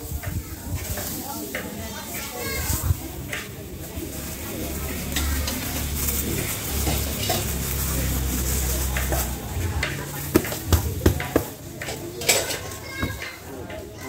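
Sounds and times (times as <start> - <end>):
wooden paddle knocking pot: 8.9 - 12.1.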